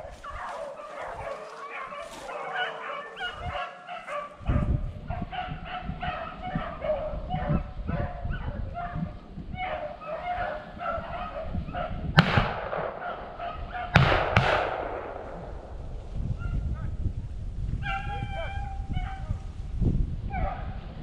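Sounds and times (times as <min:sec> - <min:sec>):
hounds bawling: 0:00.0 - 0:04.5, 0:09.6 - 0:14.8
gunshots: 0:12.2 - 0:16.5.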